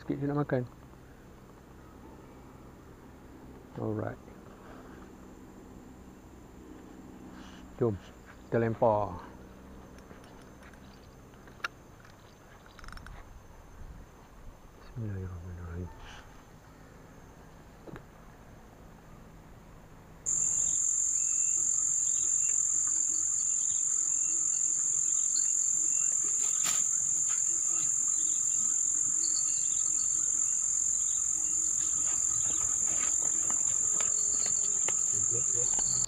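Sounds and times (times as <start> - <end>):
shrill insect drone: 20.3 - 36.0.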